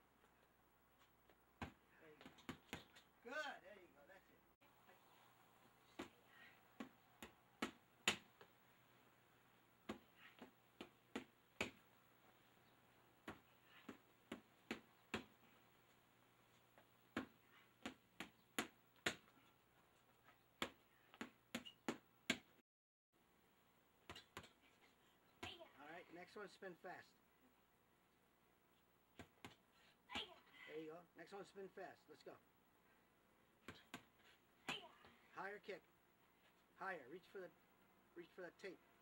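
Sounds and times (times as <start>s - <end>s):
boxing gloves slapping mitts: 1.6s - 3.1s, 6.8s - 8.6s, 9.8s - 11.9s, 13.2s - 15.5s, 16.8s - 19.4s, 20.6s - 22.6s, 24.0s - 24.7s, 29.1s - 30.4s, 33.6s - 35.0s.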